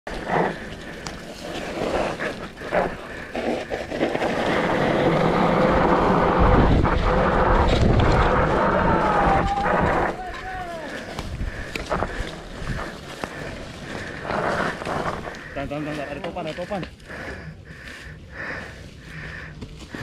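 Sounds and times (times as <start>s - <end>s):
bike rolling on dirt trail: 0.1s - 20.0s
wind rushing over microphone: 4.1s - 15.8s.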